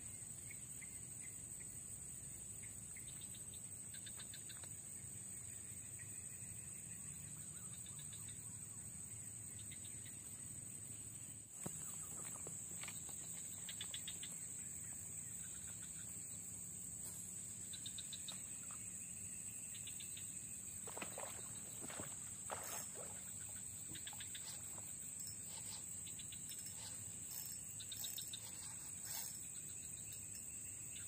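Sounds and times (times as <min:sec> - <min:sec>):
faint ticks or chirps: 0:00.1 - 0:08.8, 0:09.5 - 0:31.0
high-pitched insect drone: 0:11.7 - 0:31.0.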